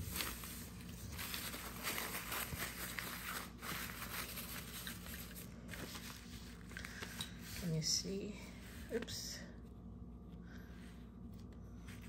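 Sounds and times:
fabric pouches rustling: 0.0s - 7.8s.

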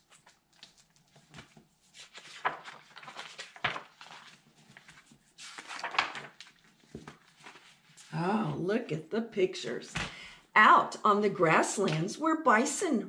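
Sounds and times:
book pages rustling: 0.0s - 8.2s.

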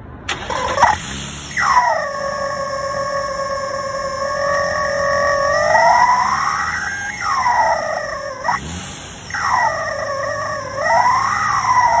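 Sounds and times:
rubber chickens squealing in exhaust: 0.4s - 12.0s.

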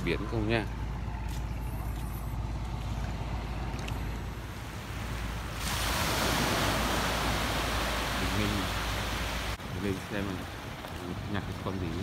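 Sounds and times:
small waves washing on shore: 2.9s - 12.0s
surf hiss: 4.5s - 11.5s.

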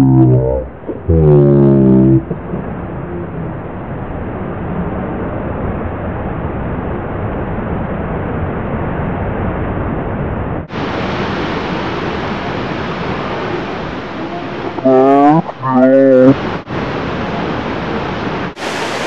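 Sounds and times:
waterfall rushing: 10.7s - 19.0s.

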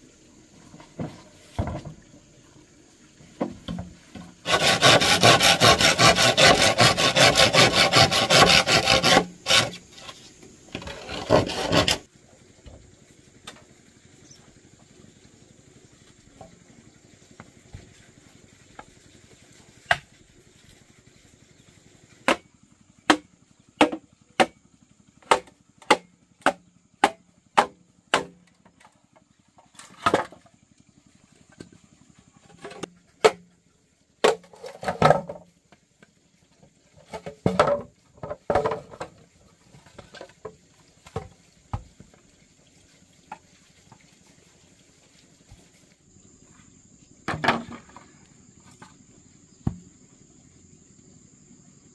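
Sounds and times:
high insect drone: 0.0s - 22.5s, 37.0s - 51.9s
rustling and scraping: 0.5s - 2.2s, 3.2s - 12.1s, 31.4s - 33.3s, 34.3s - 35.6s, 36.8s - 42.2s
chopping strikes on wood: 19.9s - 20.1s, 22.2s - 22.5s, 23.1s - 24.6s, 25.2s - 28.4s, 49.6s - 49.9s.

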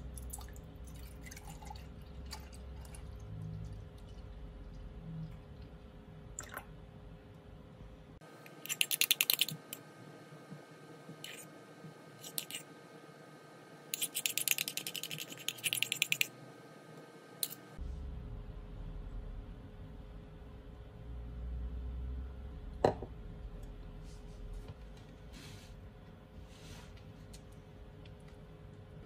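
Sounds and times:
spoon scraping ceramic bowl: 11.3s - 11.5s, 12.2s - 12.6s, 14.0s - 16.3s.

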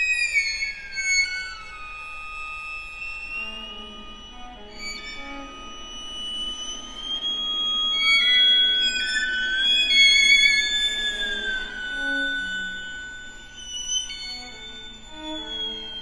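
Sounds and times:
bowed strings film music: 3.3s - 16.0s.

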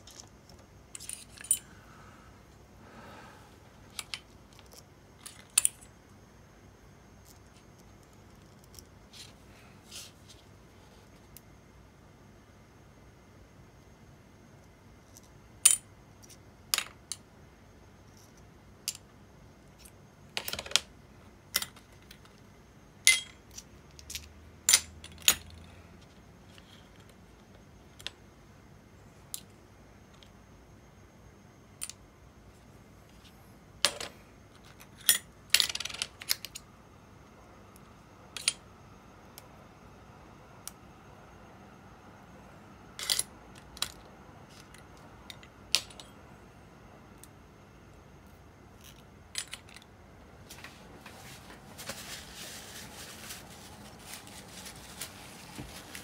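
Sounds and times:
small metal parts clinking: 0.0s - 1.7s, 23.1s - 25.6s, 43.0s - 46.1s, 48.8s - 49.9s
metal parts rattling: 0.9s - 1.7s.

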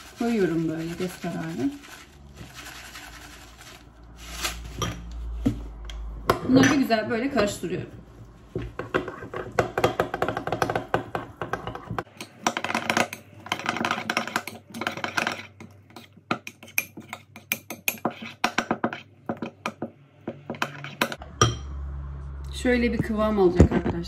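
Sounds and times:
spoon scraping a bowl: 6.5s - 21.6s.

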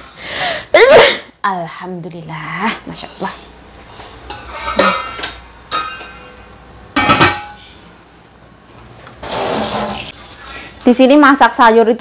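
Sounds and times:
metal pots clanking: 4.2s - 7.8s.

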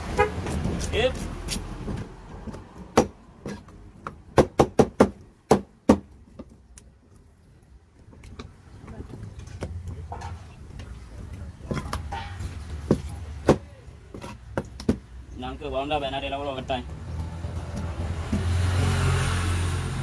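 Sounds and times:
vehicle engine humming: 15.6s - 20.0s.

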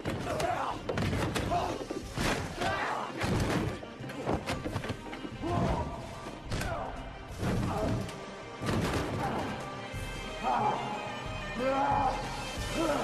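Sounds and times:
fight hits and crashes: 0.0s - 4.9s, 7.3s - 9.5s
film soundtrack music: 0.0s - 13.0s.

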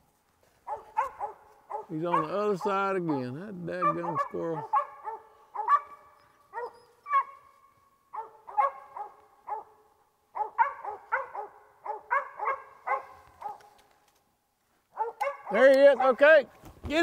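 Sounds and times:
dog barking: 0.6s - 2.6s, 3.8s - 13.8s, 14.9s - 15.6s.

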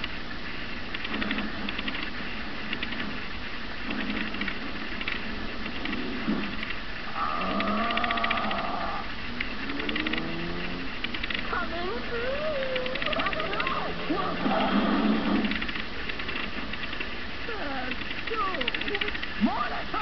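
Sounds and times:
cartoon soundtrack from small speaker: 9.7s - 15.6s, 17.4s - 20.0s.

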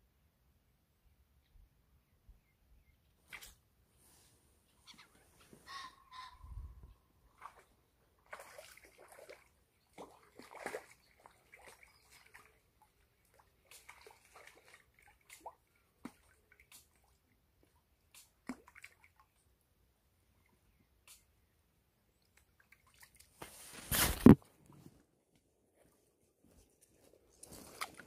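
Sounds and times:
water sloshing and splashing: 7.3s - 19.5s, 22.2s - 24.3s, 27.3s - 28.0s.

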